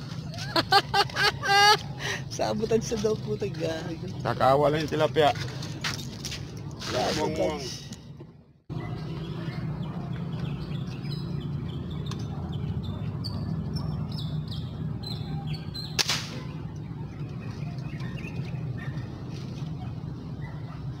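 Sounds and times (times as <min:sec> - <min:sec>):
birds chirping: 0:08.7 - 0:21.0
airgun shot into water: 0:16.0 - 0:16.4.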